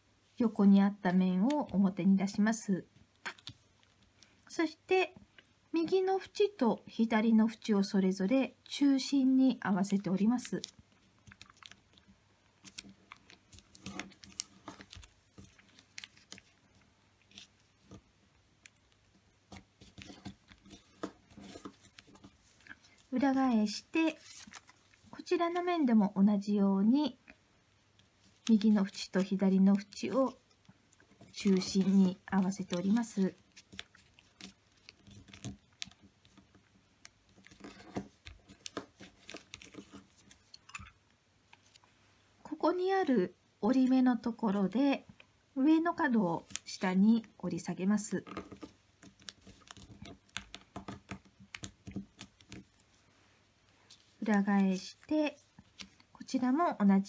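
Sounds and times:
paper crinkling while folded: 9.7s - 25.7s, 28.0s - 40.7s, 46.3s - 56.4s.

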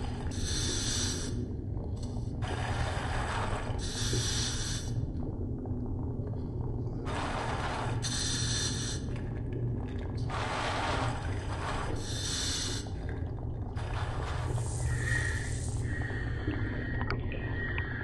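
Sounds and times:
steady low hum: 0.0s - 18.0s
regulator hissing inhalations: 8.1s - 9.0s
exhaled bubbles rushing: 9.1s - 18.0s.

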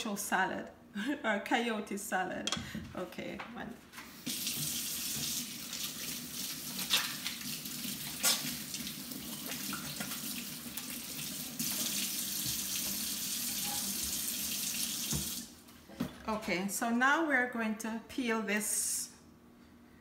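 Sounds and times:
faucet running into metal sink: 4.3s - 15.5s.

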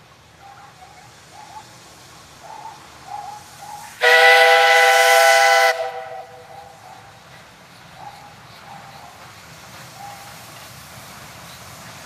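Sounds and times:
steam hissing: 0.0s - 12.0s
steam whistle blast: 4.0s - 6.5s.

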